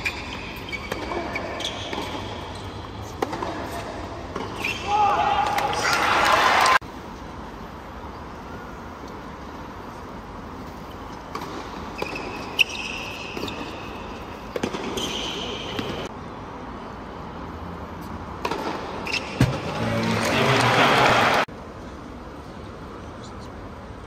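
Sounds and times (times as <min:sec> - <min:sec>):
shoes squeaking on court: 0:00.0 - 0:04.9, 0:09.9 - 0:16.1, 0:18.0 - 0:19.8
racket hitting ball: 0:03.1 - 0:04.7, 0:14.4 - 0:16.1, 0:18.4 - 0:19.8
crowd noise: 0:19.5 - 0:21.5.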